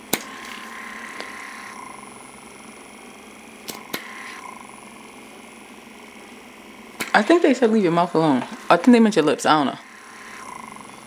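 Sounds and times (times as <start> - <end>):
suction pump whine: 0.0 - 11.0
sharp clicks: 3.6 - 4.1.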